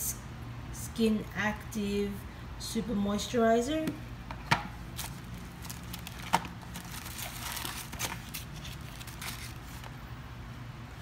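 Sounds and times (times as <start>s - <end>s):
packaging rustling and crinkling: 4.9s - 10.0s.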